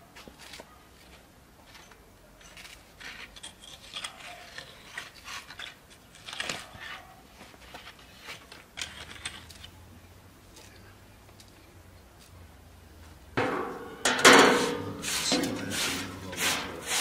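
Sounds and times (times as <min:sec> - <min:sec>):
leaves rustling: 0:13.7 - 0:17.0.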